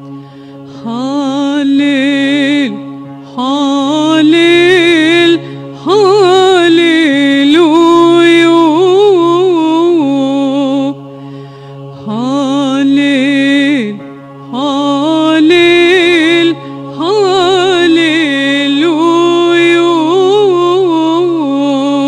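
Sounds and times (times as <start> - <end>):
low backing drone: 0.0 - 22.0
woman singing a hymn: 0.8 - 2.8, 3.4 - 11.0, 12.0 - 22.0.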